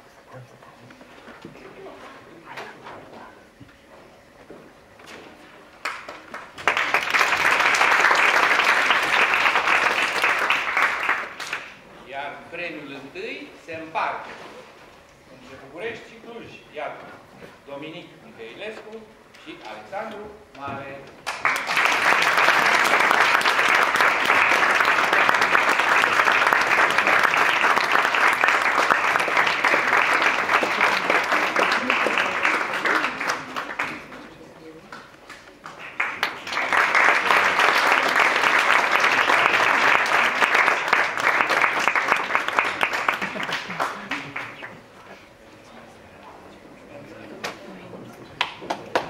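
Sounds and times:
audience applauding: 5.8 - 11.8, 21.2 - 34.3, 35.6 - 44.8.

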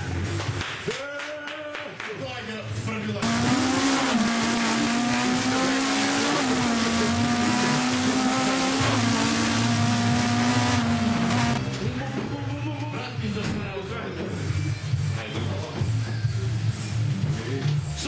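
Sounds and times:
race car engine revving: 3.2 - 11.8.

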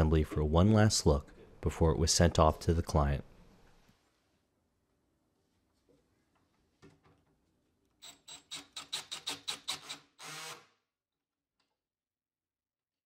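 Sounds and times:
cordless drill driving screw: 8.0 - 10.8.

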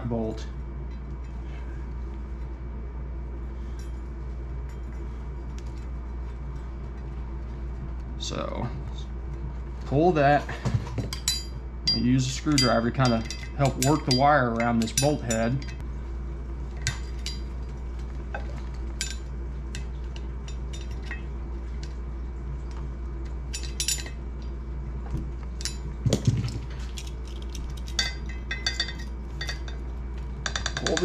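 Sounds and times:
steady low hum: 0.0 - 31.0
light metallic clinks: 11.1 - 15.8, 26.9 - 29.8.

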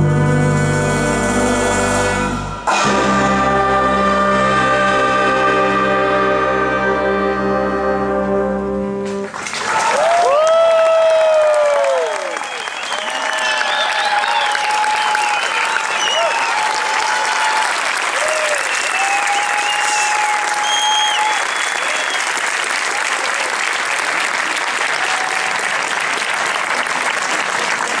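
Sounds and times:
crowd applauding: 9.2 - 28.0.

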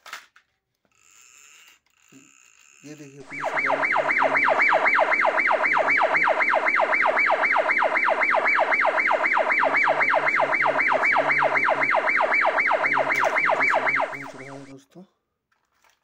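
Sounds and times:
electronic siren yelping: 3.2 - 14.7.

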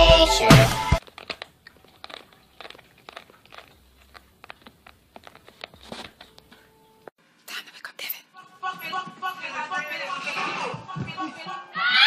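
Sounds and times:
cat crunching dry food: 1.0 - 6.3.

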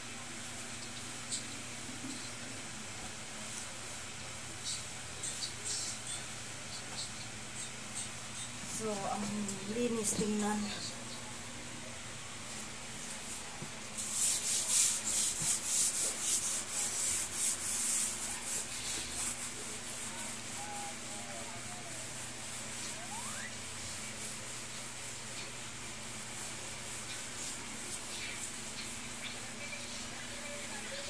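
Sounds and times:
cloth pad scrubbing floor: 12.4 - 31.0.

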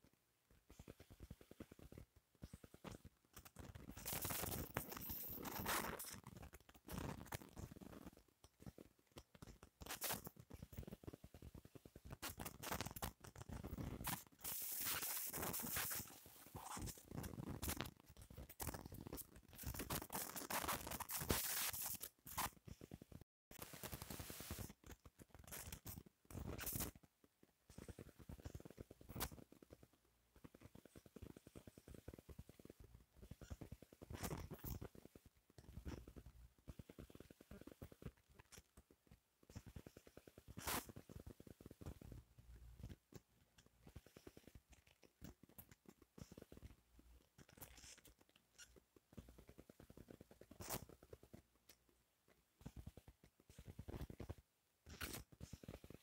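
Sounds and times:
faint irregular clicks: 0.0 - 56.0
light scratching: 12.1 - 22.6.

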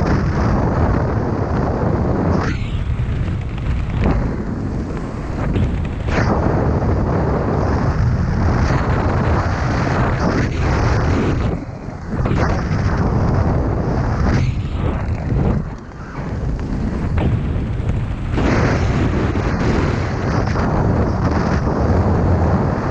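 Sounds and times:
wind buffeting microphone: 0.0 - 22.9.

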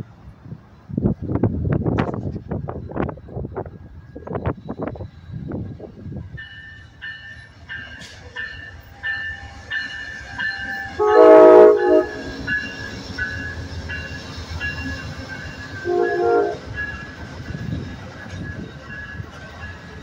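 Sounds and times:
train rumble: 0.0 - 20.0
train wheel clatter: 1.1 - 20.0
locomotive air horn blasts: 10.9 - 12.5, 15.8 - 16.7.

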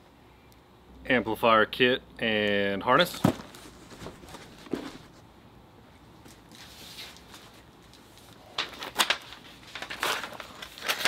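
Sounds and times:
cardboard box handled: 3.2 - 5.2
paper rustling: 3.2 - 5.2, 6.3 - 11.0.

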